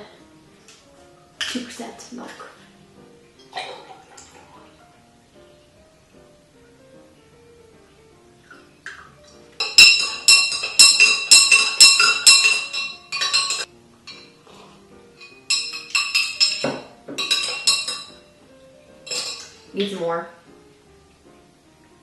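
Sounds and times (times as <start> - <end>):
soft background music: 0.0 - 22.0
spoon clinking in a glass: 9.6 - 14.4, 15.2 - 18.3, 19.0 - 19.6.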